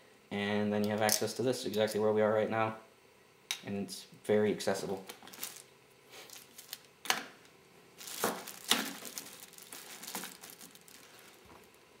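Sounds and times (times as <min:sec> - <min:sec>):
handling clicks and rustles: 0:08.0 - 0:11.8.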